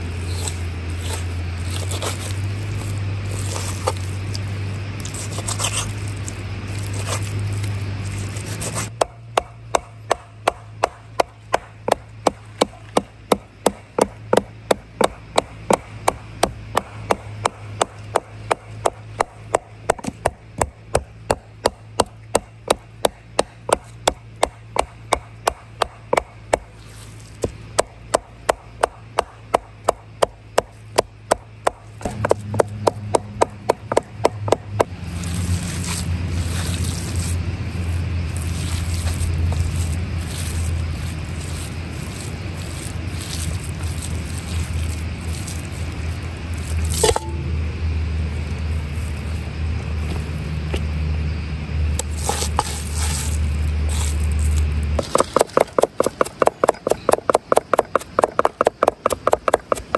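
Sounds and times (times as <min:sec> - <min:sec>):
rustling scraping noise: 0:00.0 - 0:09.0, 0:26.7 - 0:27.6, 0:35.0 - 0:47.4, 0:52.0 - 0:55.6
knife chopping meat: 0:08.3 - 0:26.7, 0:27.4 - 0:35.0, 0:55.0 - 0:59.9.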